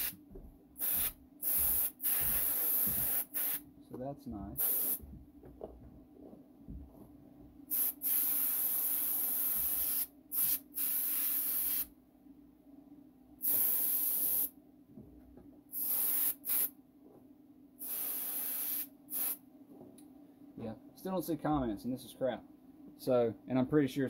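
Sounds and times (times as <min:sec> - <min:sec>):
steady low hum: 0:00.0 - 0:08.4
spray paint hissing: 0:00.8 - 0:03.6, 0:04.6 - 0:05.0, 0:07.7 - 0:11.9, 0:13.4 - 0:14.5, 0:15.7 - 0:16.7, 0:17.8 - 0:19.4.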